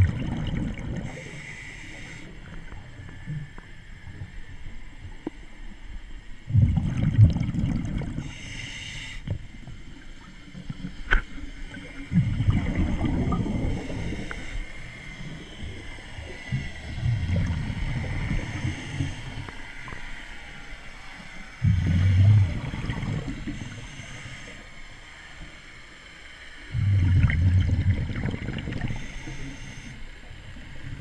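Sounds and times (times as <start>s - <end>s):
exhaled bubbles underwater: 0.0s - 1.4s, 6.4s - 8.4s, 10.2s - 20.0s, 21.6s - 24.6s, 26.7s - 31.0s
regulator inhale hiss: 0.9s - 3.1s, 8.2s - 9.6s, 13.4s - 25.6s, 28.7s - 30.3s.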